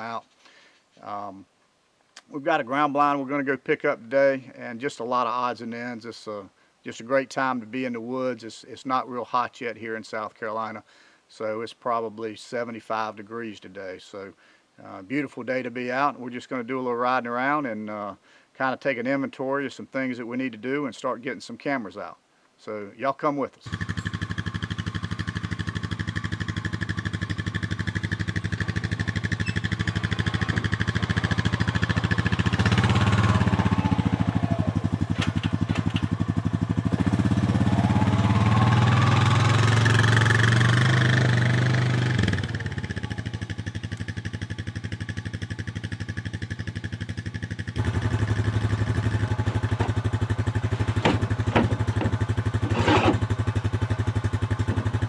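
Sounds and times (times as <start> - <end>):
atv engine running: 23.7 - 55.0.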